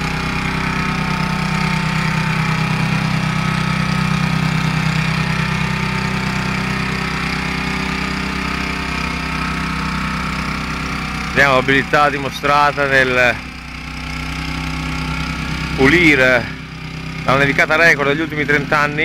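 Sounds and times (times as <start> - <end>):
snowblower engine running: 0.0 - 19.0.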